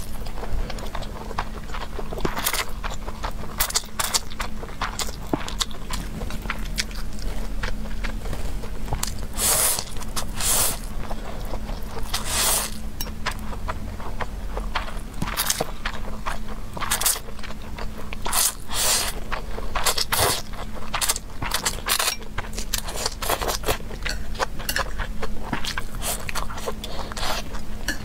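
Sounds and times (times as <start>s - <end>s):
faint low hum: 0.0s - 28.0s
wet chewing: 0.0s - 28.0s
hissing noodle slurps: 9.3s - 10.9s, 12.2s - 12.8s.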